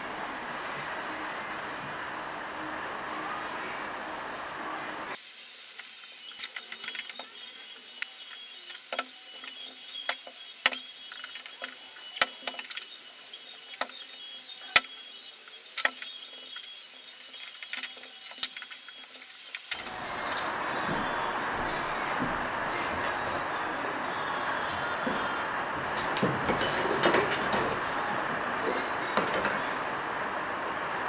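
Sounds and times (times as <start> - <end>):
cloth rubbing on wood: 0.0 - 5.2.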